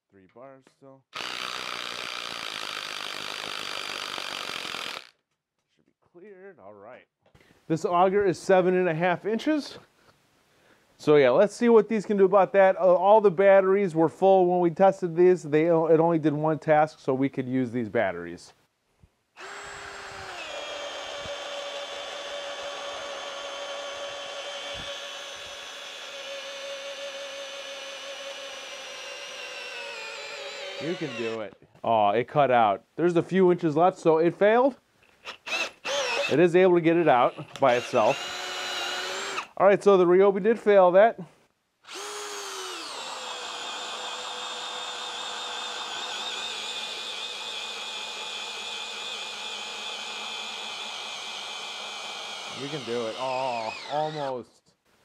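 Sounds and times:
drill motor whine boring wood: 0:01.2 - 0:05.1, 0:19.4 - 0:31.4, 0:35.2 - 0:36.4, 0:37.0 - 0:39.5, 0:41.9 - 0:54.4.

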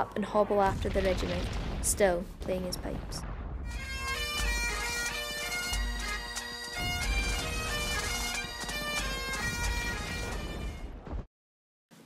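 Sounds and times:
bagpipes playing a lively tune: 0:03.7 - 0:10.8.

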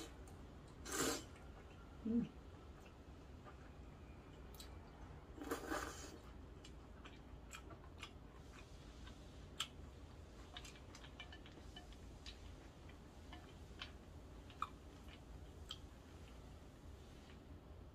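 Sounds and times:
slurping noodles: 0:00.8 - 0:01.4, 0:05.4 - 0:06.2.

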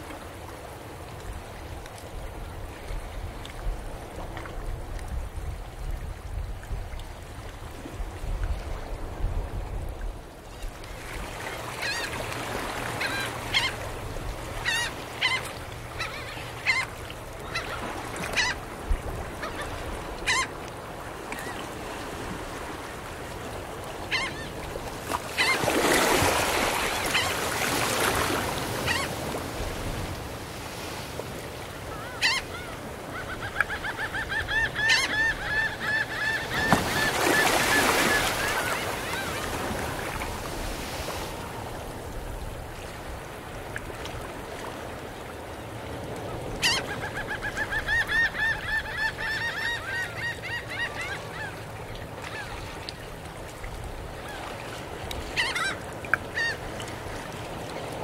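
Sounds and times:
ocean waves washing up shore: 0:00.0 - 0:34.1, 0:34.8 - 0:47.4, 0:51.2 - 0:58.0
seagulls calling: 0:11.7 - 0:13.8, 0:14.5 - 0:18.6, 0:19.3 - 0:20.6, 0:24.1 - 0:24.6, 0:25.3 - 0:28.1, 0:28.8 - 0:29.3, 0:31.9 - 0:40.2, 0:46.3 - 0:51.6, 0:55.4 - 0:56.8.

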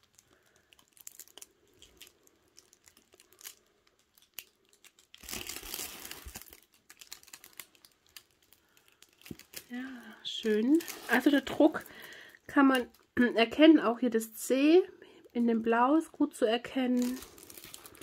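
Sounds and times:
plastic film crinkling: 0:00.0 - 0:13.6, 0:15.2 - 0:18.0.

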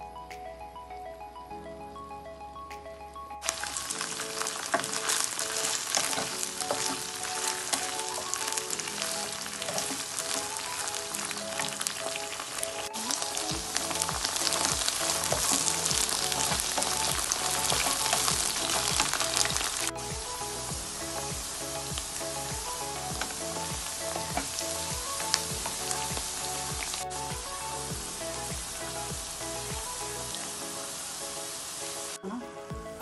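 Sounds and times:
okra sizzling in hot oil: 0:03.4 - 0:11.2.

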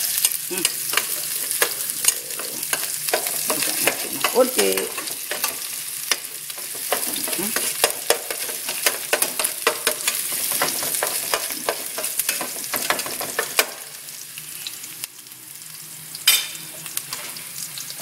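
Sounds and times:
onion sizzling in hot oil: 0:00.0 - 0:18.0
metal spoon scraping pan: 0:00.6 - 0:13.7.

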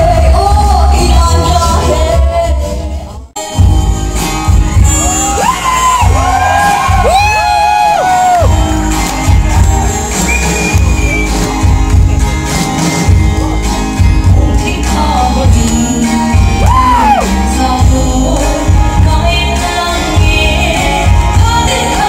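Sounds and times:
woman singing: 0:00.0 - 0:03.3, 0:14.2 - 0:22.0
live band playing: 0:00.0 - 0:22.0.

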